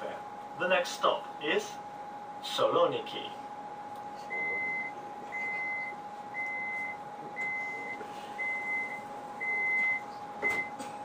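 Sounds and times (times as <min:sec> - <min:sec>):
high-pitched warning beeps: 0:04.3 - 0:10.8.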